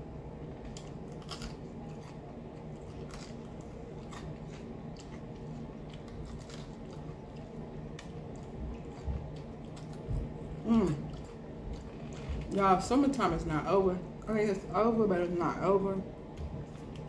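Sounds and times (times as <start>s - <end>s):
low steady hum: 0.0s - 17.0s
crunching fried fish crust: 0.6s - 12.5s.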